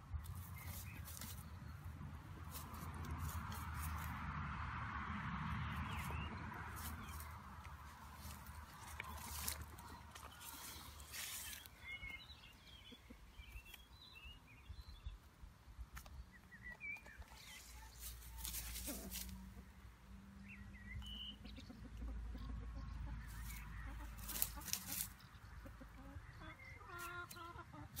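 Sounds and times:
rustling in grass: 0:00.1 - 0:04.2, 0:05.8 - 0:14.0, 0:17.1 - 0:19.6, 0:23.3 - 0:25.3
hen clucking: 0:06.8 - 0:13.8, 0:17.0 - 0:19.7, 0:21.0 - 0:28.0.

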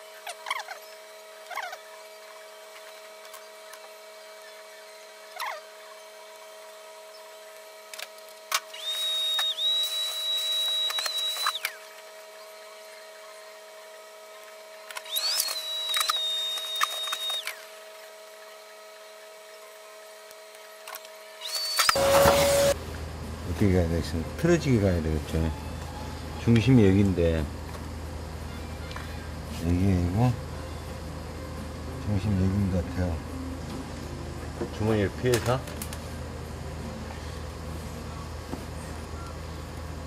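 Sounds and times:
electric cutting tool whine: 0:00.0 - 0:22.8
short scratching strokes: 0:21.4 - 0:22.8.

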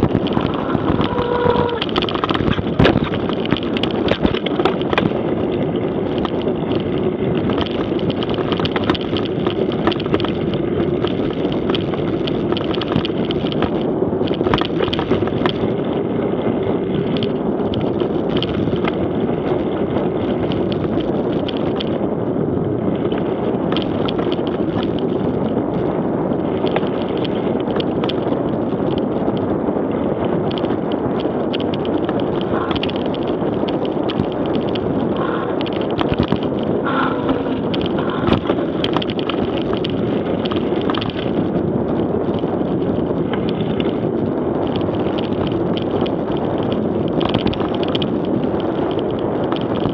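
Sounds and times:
tyres crunching over stones: 0:00.0 - 0:10.5
bike clicks and knocks: 0:00.0 - 0:22.1, 0:22.8 - 0:49.9
wind noise: 0:00.0 - 0:49.9.

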